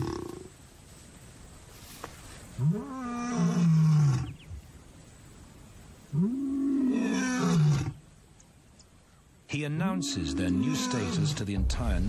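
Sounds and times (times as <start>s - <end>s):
lion roaring: 10.0s - 12.0s.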